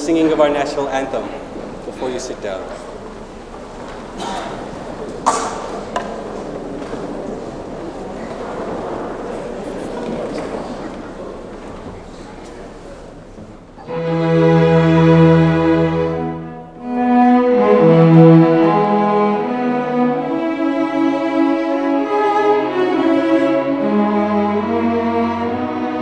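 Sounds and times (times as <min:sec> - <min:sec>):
string orchestra playing anthem: 0:13.8 - 0:26.0.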